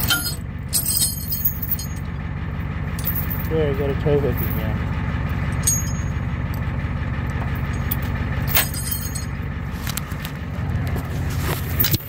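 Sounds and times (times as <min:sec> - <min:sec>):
metal clink of hook and chain: 0:00.0 - 0:02.1, 0:03.0 - 0:03.5, 0:05.6 - 0:06.2, 0:07.7 - 0:09.3
truck engine idling: 0:00.0 - 0:12.0.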